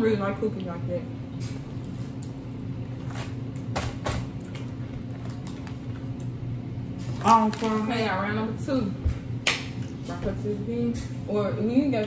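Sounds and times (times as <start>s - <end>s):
low room hum: 0.0s - 12.0s
plastic wrapping crinkling: 7.0s - 8.2s.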